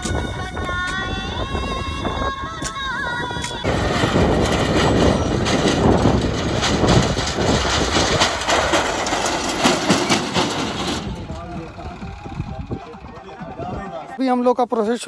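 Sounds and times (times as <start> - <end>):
tractor diesel engine running: 3.3 - 14.2
trailer knocking and clattering: 3.6 - 14.0.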